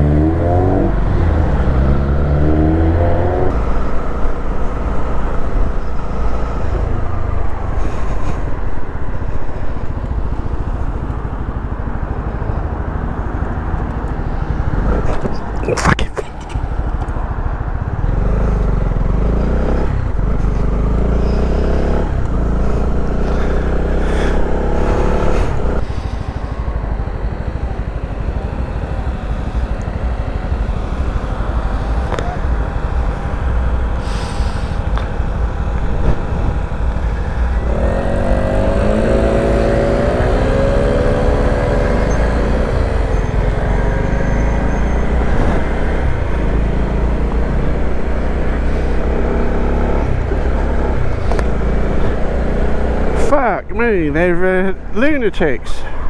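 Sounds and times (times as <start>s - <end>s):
wind rumble on microphone: 13.3s - 19.0s
motorcycle engine running: 16.3s - 55.0s.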